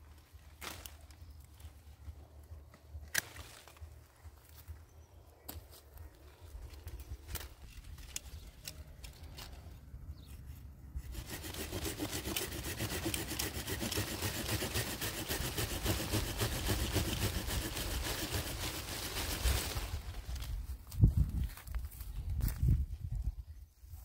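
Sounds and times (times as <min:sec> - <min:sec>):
hand saw cutting a branch: 0:11.0 - 0:19.8.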